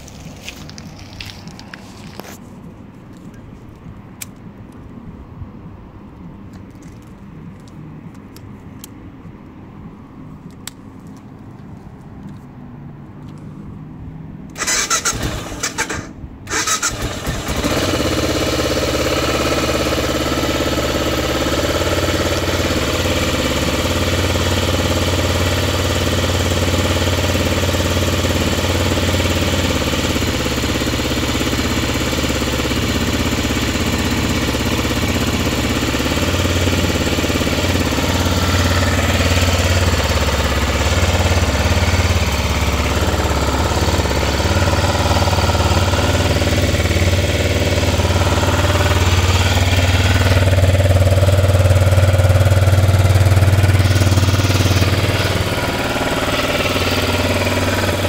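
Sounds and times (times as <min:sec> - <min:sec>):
electric starter cranking: 0:14.5 - 0:19.1
motorcycle engine idling: 0:14.6 - 0:58.0.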